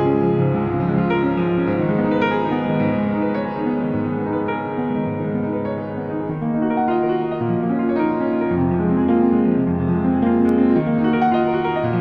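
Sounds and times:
calm piano music: 0.0 - 12.0.

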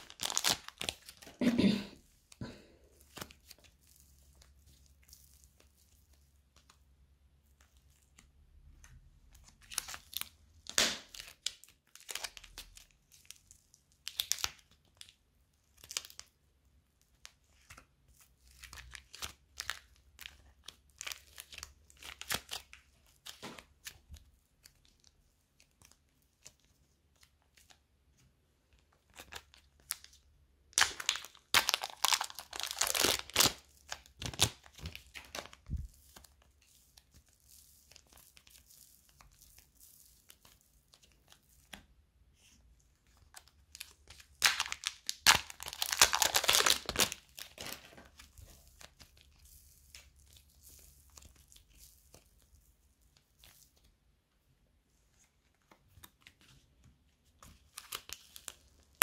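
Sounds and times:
slime squishing and crackling: 0.0 - 1.4, 3.1 - 6.9, 9.4 - 16.4, 30.7 - 41.7, 43.1 - 53.8.

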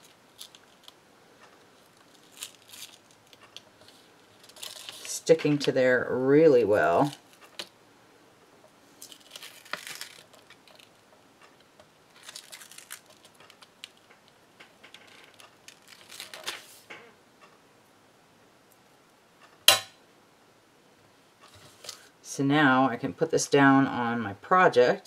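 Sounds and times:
paper crinkling and crackling: 0.0 - 1.0, 1.8 - 5.8, 9.0 - 11.0, 12.1 - 16.9
plastic film rustling: 0.0 - 1.0, 1.8 - 5.8, 9.0 - 11.0, 12.1 - 16.9.

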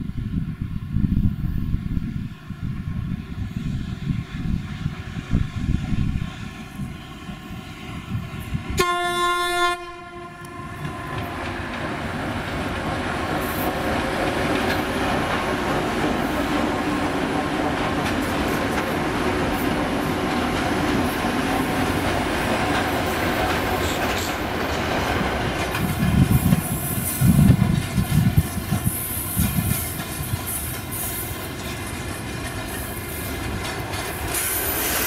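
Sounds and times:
train horn blast: 8.6 - 11.4
locomotive rumble: 10.2 - 35.0
wheels rolling on rails: 10.8 - 35.0.

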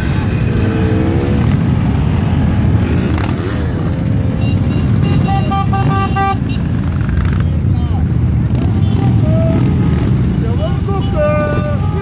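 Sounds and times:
motorcycles passing: 0.0 - 12.0
horn honking: 4.4 - 6.8.

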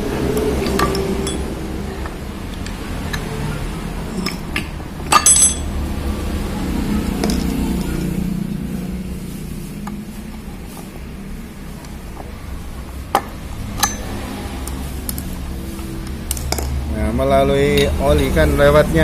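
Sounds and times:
low background hum: 0.0 - 18.9
metal clinking on tiled floor: 0.6 - 1.6, 2.5 - 5.8, 13.8 - 15.2.

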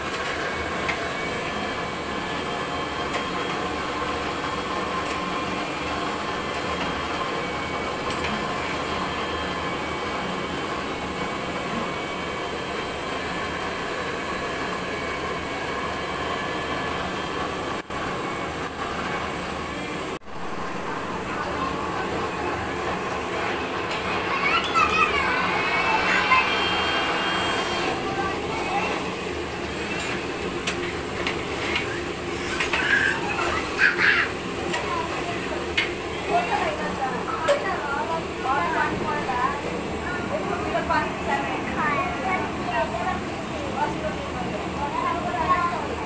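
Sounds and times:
gas burner roaring: 0.0 - 46.0.

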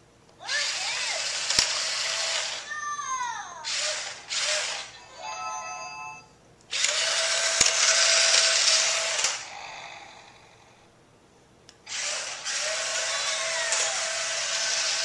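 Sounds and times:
toy car motor whirring: 0.4 - 2.9, 3.6 - 5.0, 6.7 - 10.5, 11.9 - 15.0.

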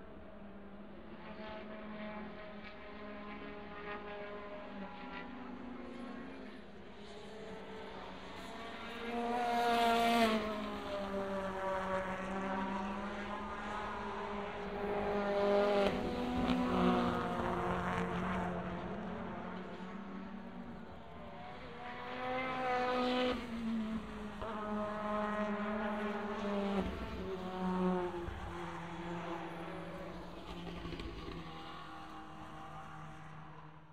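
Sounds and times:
racing cars passing through corner: 6.9 - 33.9.

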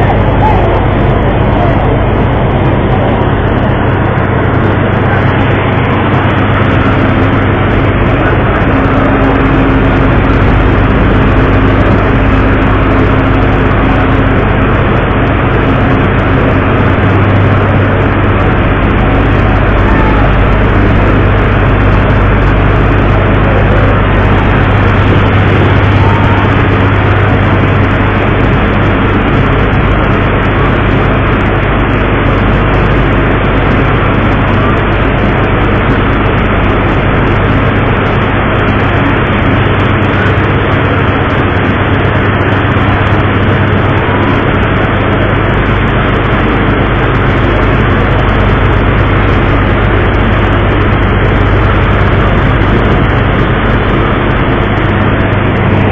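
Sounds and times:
boat engine humming: 0.0 - 55.9
sea noise: 0.0 - 55.9.

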